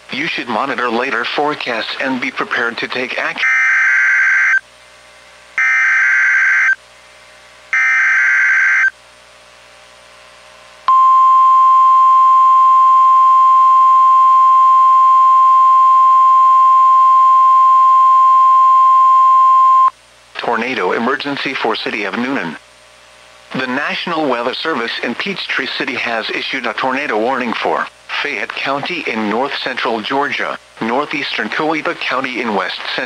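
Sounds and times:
steady warning alarm tone: 0:03.4 - 0:04.6, 0:05.6 - 0:06.8, 0:07.7 - 0:08.9.

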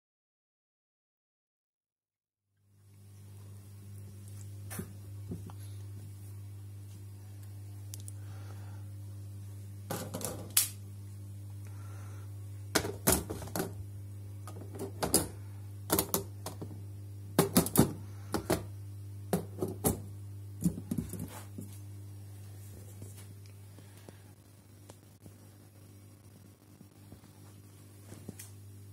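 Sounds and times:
steady low hum: 0:02.7 - 0:28.9.

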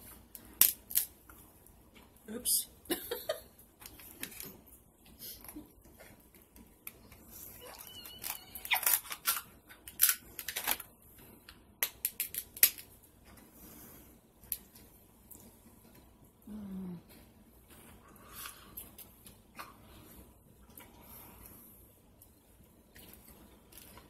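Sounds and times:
crab shells cracking: 0:08.3 - 0:10.9, 0:11.8 - 0:12.9.

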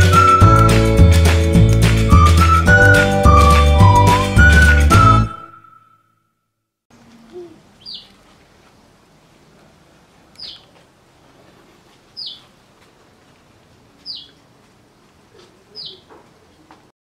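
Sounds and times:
bird chirping: 0:07.3 - 0:08.2, 0:10.3 - 0:10.8, 0:12.1 - 0:12.5, 0:14.0 - 0:14.4, 0:15.4 - 0:16.6.

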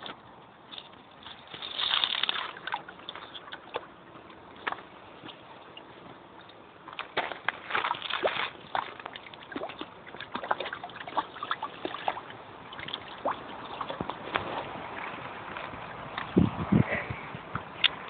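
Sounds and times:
water splashing: 0:00.7 - 0:16.5.

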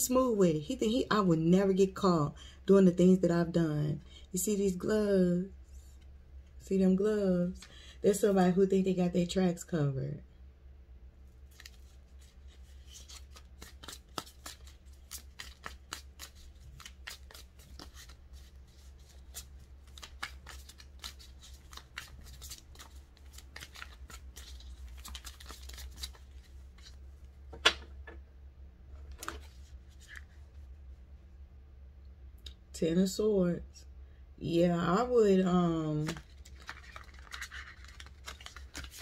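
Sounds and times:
cards being shuffled: 0:11.4 - 0:28.0, 0:29.0 - 0:30.4, 0:36.0 - 0:39.0.

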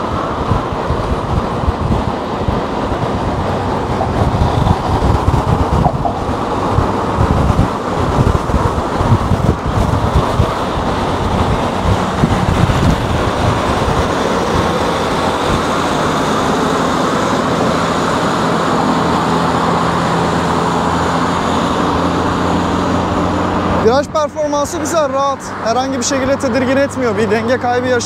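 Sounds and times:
low droning hum: 0:00.0 - 0:24.8
road rush: 0:00.0 - 0:28.0
wind buffeting microphone: 0:00.0 - 0:28.0.

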